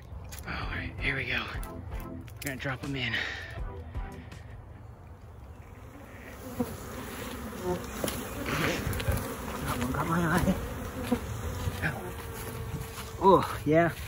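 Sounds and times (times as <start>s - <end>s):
bee swarm buzzing: 5.5s - 14.0s.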